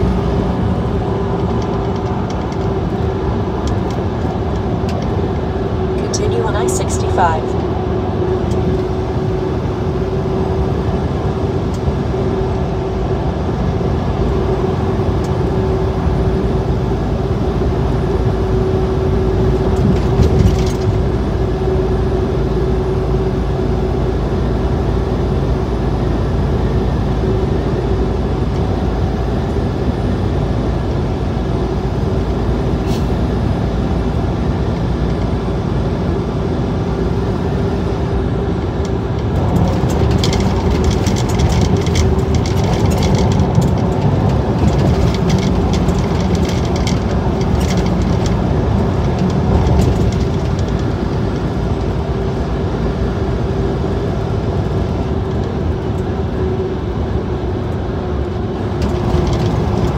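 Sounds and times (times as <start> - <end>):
constant humming tone: 0.0 - 59.9
truck engine and road noise: 0.0 - 59.9.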